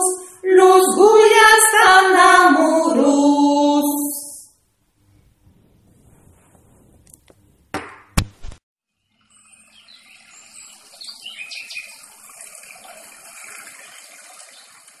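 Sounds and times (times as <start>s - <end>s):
running water rushing: 9.7s - 15.0s.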